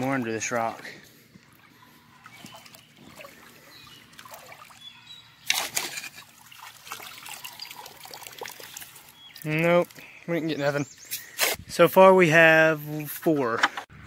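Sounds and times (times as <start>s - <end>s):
creek water trickling: 0.0s - 11.3s
hand net scooping water: 2.2s - 10.0s.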